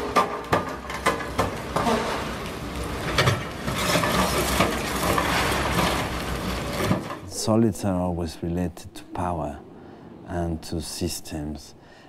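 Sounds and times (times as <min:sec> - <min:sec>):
concrete crunching and clinking: 0:00.0 - 0:07.2
low rumble of machine engines: 0:00.1 - 0:12.0.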